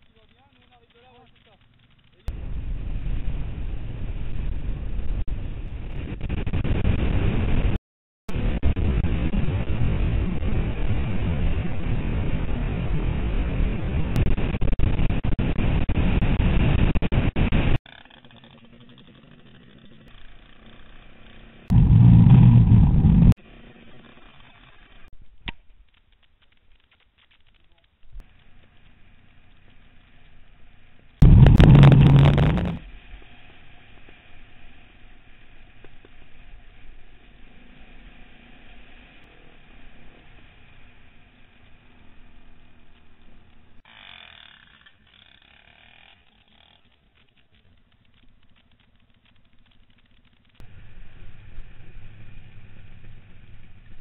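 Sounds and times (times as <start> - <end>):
motorcycle engine running: 17.9 - 25.1, 28.3 - 43.8, 46.6 - 54.0
wind noise on microphone: 21.7 - 23.4, 31.2 - 32.9
sharp clicks: 46.7 - 50.7.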